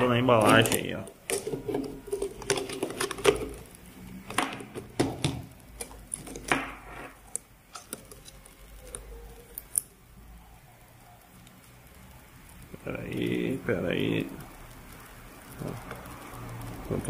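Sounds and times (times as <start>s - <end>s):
keyboard handling clicks and rustles: 0.0s - 10.0s.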